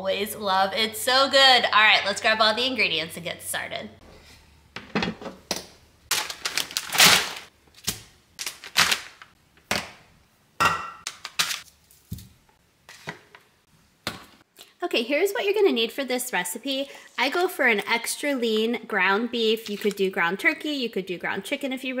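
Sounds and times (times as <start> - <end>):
packaging rustle: 6.1 - 7.5, 8.4 - 9.3.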